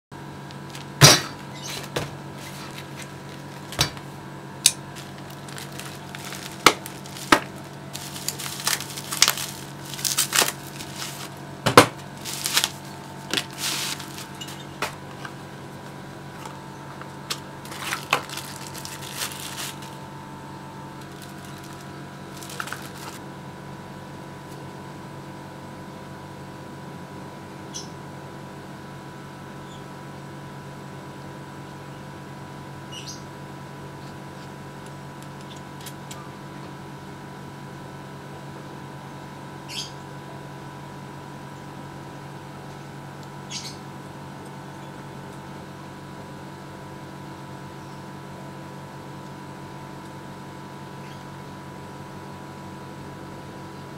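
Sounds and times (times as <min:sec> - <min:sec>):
droning hum of held tones: 0:00.2 - 0:53.9
plastic packaging crinkling: 0:00.5 - 0:01.0, 0:01.7 - 0:04.1, 0:04.7 - 0:15.4, 0:16.2 - 0:20.1, 0:20.9 - 0:23.2.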